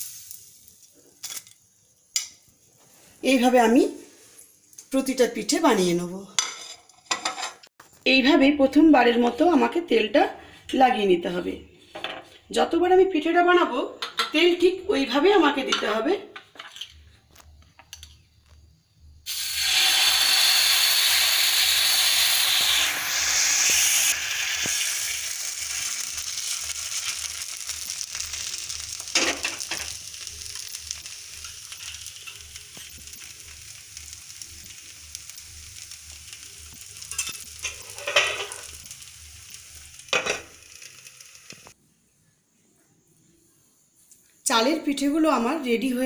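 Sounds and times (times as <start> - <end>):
batter sizzling on hot pan: 0.0 - 4.8, 19.3 - 41.8.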